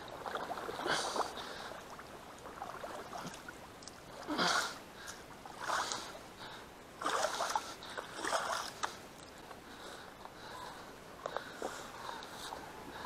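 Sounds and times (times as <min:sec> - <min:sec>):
water splashing: 0:00.0 - 0:09.4.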